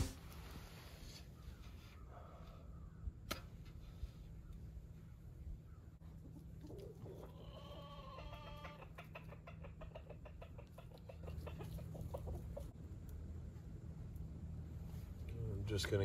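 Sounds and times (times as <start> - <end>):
faint chicken calls: 0.8 - 12.8
chicken clucking: 6.0 - 12.8.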